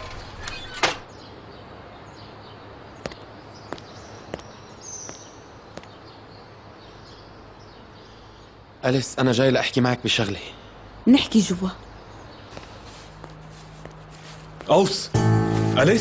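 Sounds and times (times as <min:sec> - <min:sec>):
outdoor background noise: 0:00.0 - 0:16.0
footsteps on hard path: 0:03.0 - 0:06.0, 0:12.4 - 0:16.0.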